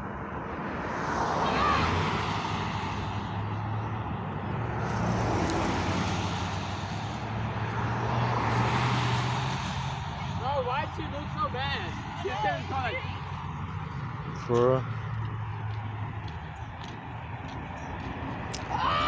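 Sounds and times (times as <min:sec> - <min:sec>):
cars passing on highway: 0:00.0 - 0:19.0.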